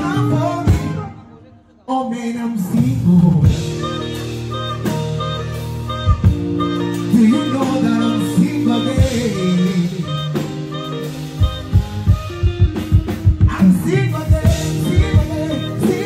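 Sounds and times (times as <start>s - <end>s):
drum kit: 0.0s - 1.3s, 2.6s - 16.0s
electric guitar: 0.0s - 1.8s, 2.4s - 16.0s
man singing into microphone: 0.0s - 4.0s, 6.9s - 10.9s, 13.4s - 16.0s.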